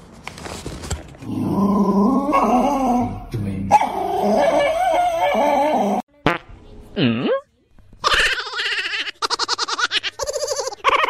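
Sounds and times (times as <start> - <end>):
small dog whining: 3.7 - 6.0.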